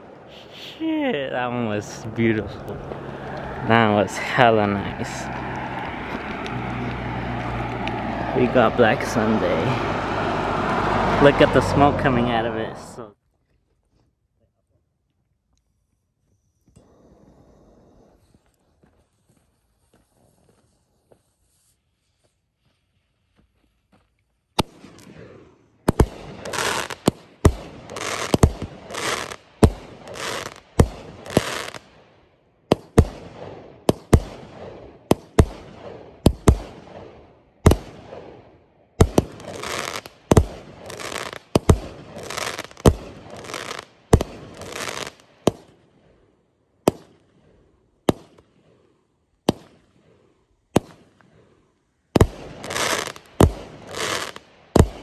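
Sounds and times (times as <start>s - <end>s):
firework bangs and crackle: 0.0s - 13.0s, 24.6s - 32.1s, 32.7s - 46.1s, 46.8s - 51.5s, 52.1s - 55.0s.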